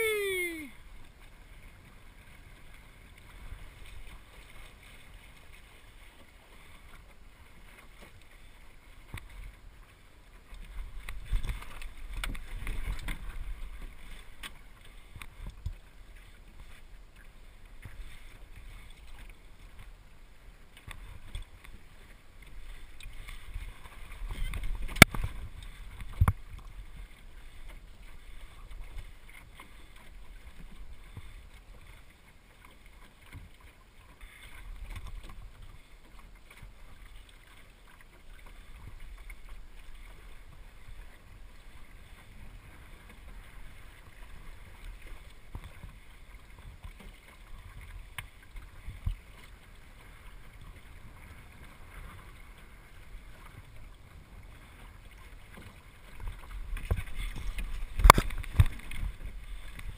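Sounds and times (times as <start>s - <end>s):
water washing along hull: 0.0s - 59.9s
wind rumble on microphone: 56.1s - 59.9s.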